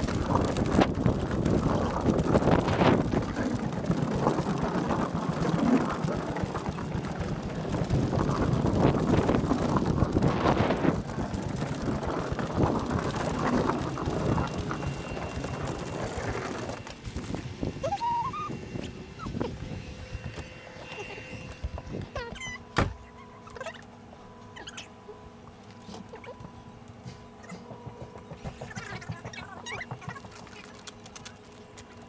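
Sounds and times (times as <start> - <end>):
wind buffeting microphone: 0.0 - 22.2
cart rolling over wooden planks: 0.0 - 22.5, 27.4 - 32.0.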